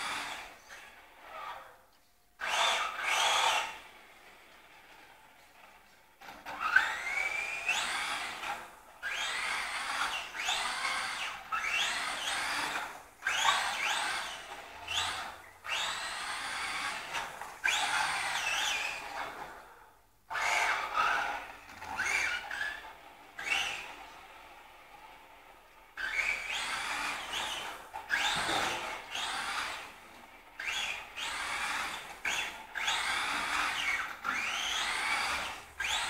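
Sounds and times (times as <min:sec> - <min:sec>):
electric motor whining in bursts: 0:06.7 - 0:19.4, 0:26.0 - 0:30.0, 0:30.6 - 0:36.0.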